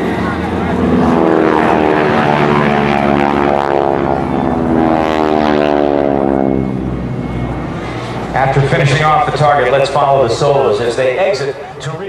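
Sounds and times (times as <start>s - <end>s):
propeller plane flying past: 0.0s - 12.0s.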